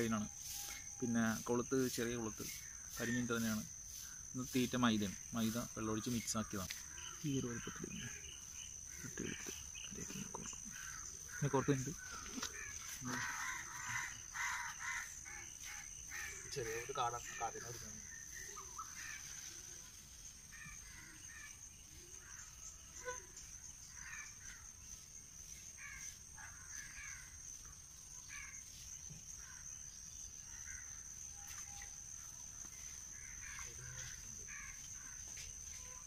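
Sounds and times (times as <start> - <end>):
crows cawing: 6.0 - 19.7, 20.5 - 21.6, 23.9 - 24.7, 25.8 - 27.5, 28.2 - 28.6, 30.5 - 31.1, 32.5 - 35.6.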